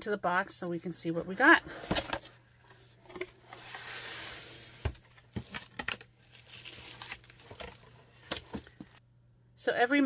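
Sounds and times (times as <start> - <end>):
cardboard box rustling scrape: 3.0 - 5.2.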